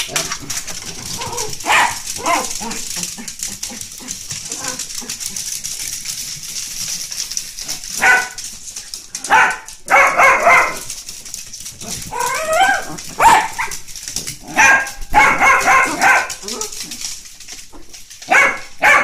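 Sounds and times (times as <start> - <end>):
dogs barking excitedly: 0.0 - 19.0
dog whining: 12.0 - 13.0.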